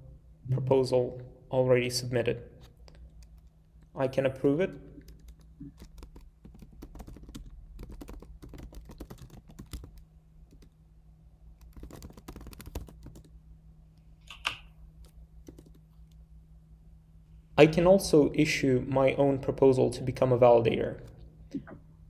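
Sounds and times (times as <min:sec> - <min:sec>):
typing on computer keyboard: 0:05.0 - 0:10.8, 0:11.6 - 0:13.3, 0:14.3 - 0:15.8.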